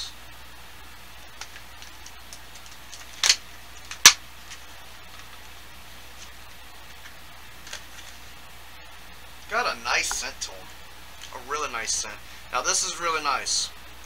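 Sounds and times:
plastic package clicking and crackling: 1.3 - 5.4, 6.2 - 8.2.

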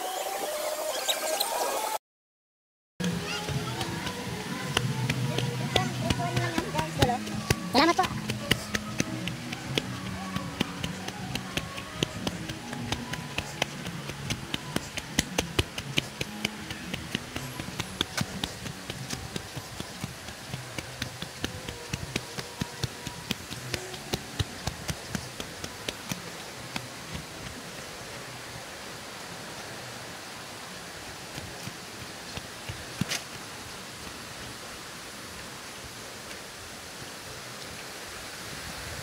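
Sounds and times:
sharp clicks or taps: 3.0 - 27.6
steady rushing noise: 3.0 - 37.3.

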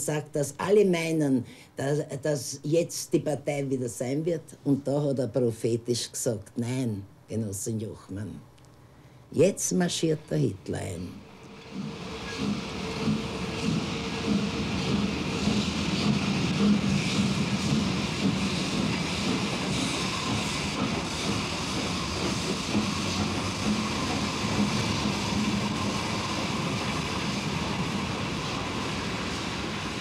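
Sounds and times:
train rumbling on rails: 11.2 - 30.0.

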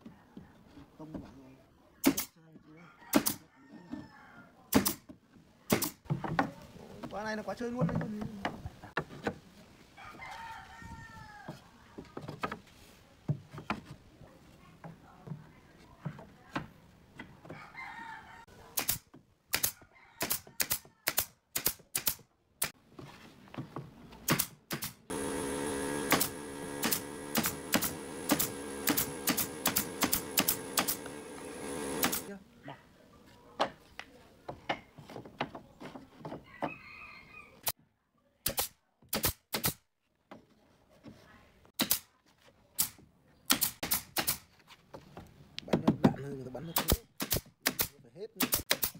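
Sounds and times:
nail gun firing into wood: 2.0 - 2.3, 3.1 - 3.4, 4.7 - 5.0, 5.7 - 6.0, 18.8 - 22.2, 24.2 - 32.3, 38.5 - 39.8, 41.8 - 42.1, 42.8 - 44.5, 46.7 - 48.9
air compressor motor humming: 25.1 - 32.4.

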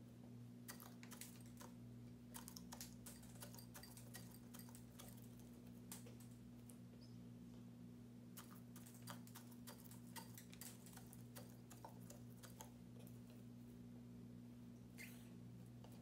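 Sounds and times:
low steady hum: 0.0 - 16.0
beak tapping on seed and glass: 2.4 - 5.3.

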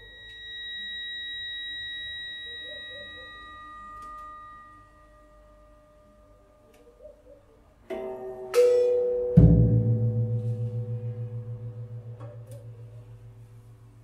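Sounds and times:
pure high held tones: 0.0 - 9.4, 10.0 - 14.0
faint wavering low notes: 0.0 - 14.0.

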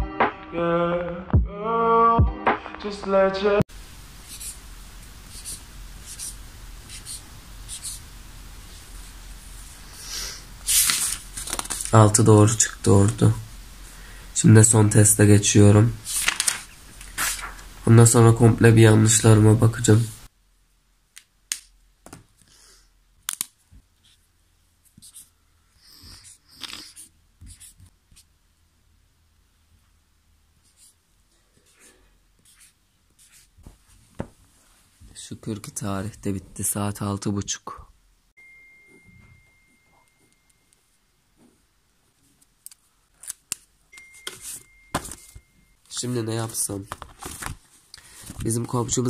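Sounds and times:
marker pen scratching paper: 4.2 - 4.6, 5.2 - 8.1, 24.8 - 28.3, 30.6 - 31.0, 31.6 - 33.6
felt tip scratching paper: 4.3 - 4.6, 5.3 - 8.0
paper rustling: 10.6 - 13.2, 16.0 - 17.8, 46.4 - 48.9.

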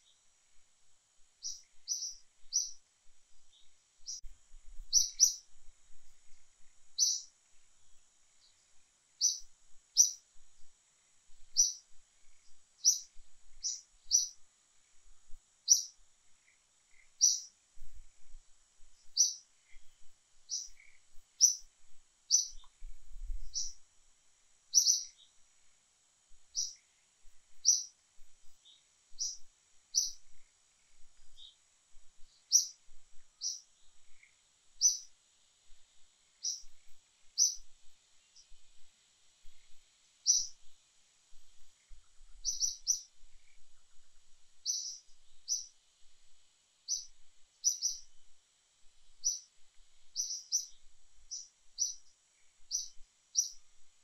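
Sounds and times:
faint high hiss: 0.0 - 54.0
bird chirping: 1.4 - 5.6, 6.2 - 7.3, 8.4 - 10.2, 11.5 - 15.0, 15.6 - 17.6, 19.0 - 23.8, 24.7 - 25.4, 26.5 - 31.6, 32.2 - 35.1, 36.4 - 45.8, 46.8 - 48.3, 49.1 - 53.7.

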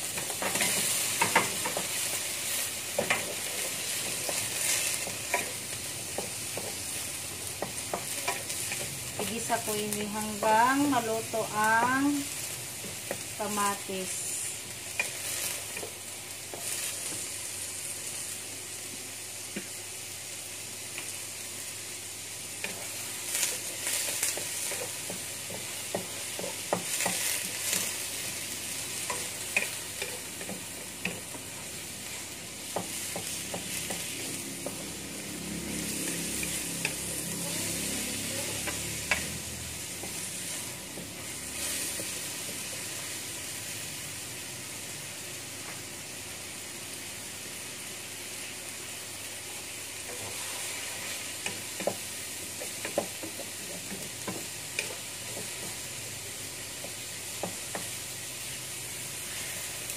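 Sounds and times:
tomatoes sizzling in a wok: 0.0 - 59.9
wooden spatula scraping a pan: 50.0 - 55.8.

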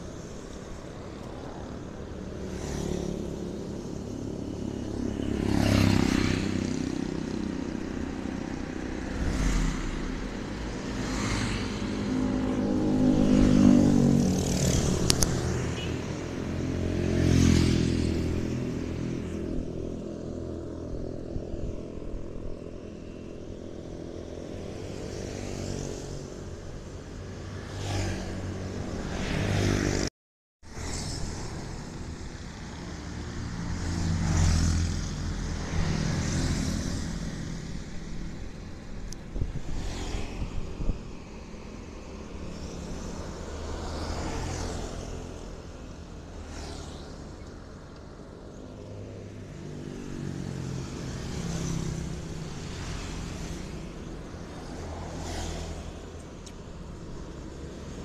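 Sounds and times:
vehicle engines passing: 0.0 - 58.0.

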